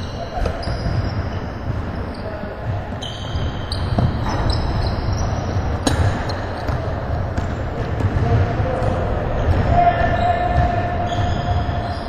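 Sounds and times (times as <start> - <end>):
sneaker squeaks: 0.0 - 12.0
basketball bouncing: 2.6 - 9.7.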